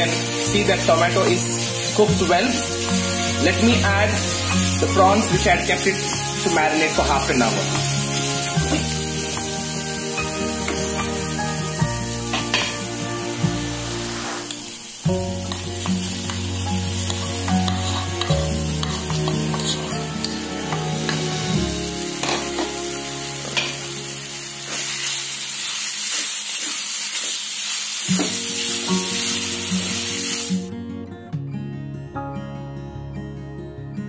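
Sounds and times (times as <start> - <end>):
background music: 0.0 - 26.0, 28.1 - 34.0
prawns sizzling in a pan: 0.0 - 30.7
spatula scraping a pan: 13.8 - 14.6, 17.1 - 20.3.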